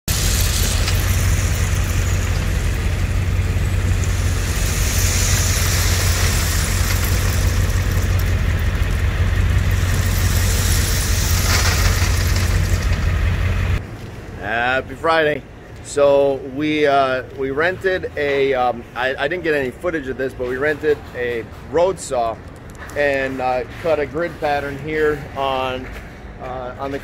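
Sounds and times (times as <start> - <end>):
heavy machinery engine running: 0.0 - 13.8.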